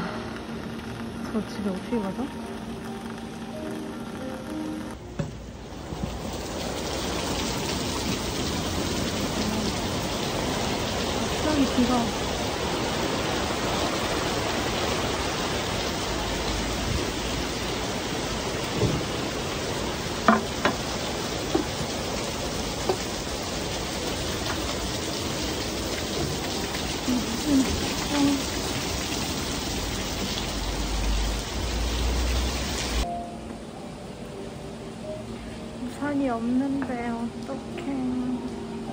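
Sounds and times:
rain falling: 0.0s - 33.1s
sharp taps of raindrops: 5.2s - 11.8s, 18.4s - 29.4s.

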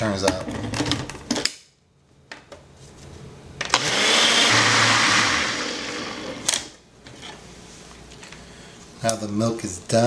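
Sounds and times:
blender motor humming: 3.7s - 6.7s.

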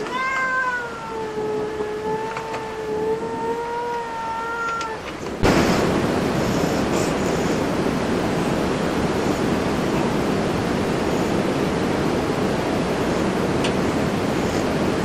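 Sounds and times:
cat meowing: 0.0s - 1.4s, 3.4s - 5.0s
loud rushing hiss: 5.2s - 15.0s.

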